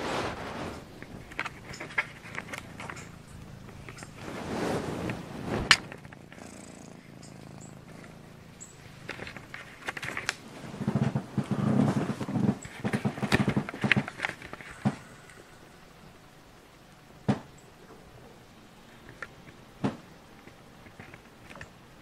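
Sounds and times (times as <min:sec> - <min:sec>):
cat purring: 0:00.0 - 0:22.0
phone rubbing and knocking: 0:09.1 - 0:15.0.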